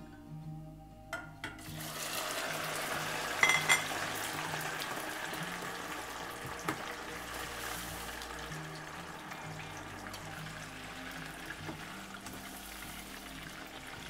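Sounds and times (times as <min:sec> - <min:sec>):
oil sizzling and bubbling: 0:01.6 - 0:14.0
metal skimmer clinking on pot: 0:03.4 - 0:04.0.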